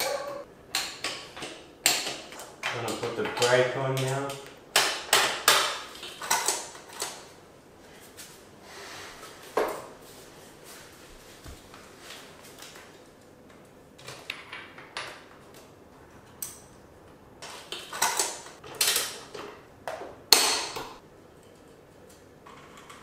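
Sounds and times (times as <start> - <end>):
tools and metal parts clattering: 5.1 - 7.2, 17.4 - 19.5.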